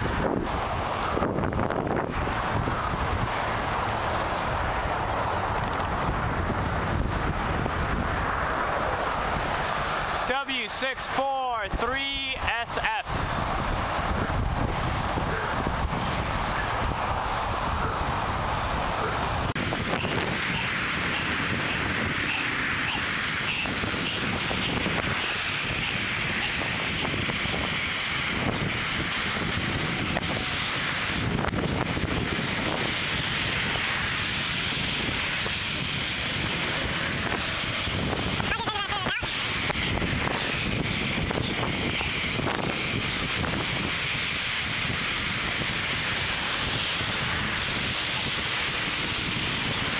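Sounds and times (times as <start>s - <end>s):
low road rumble: 0.0s - 49.9s
wind rush: 0.0s - 49.9s.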